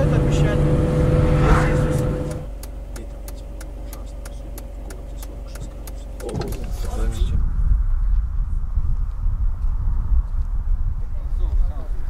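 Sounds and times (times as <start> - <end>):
car engine and road rumble: 0.0 - 12.0
light ticks: 2.0 - 6.7.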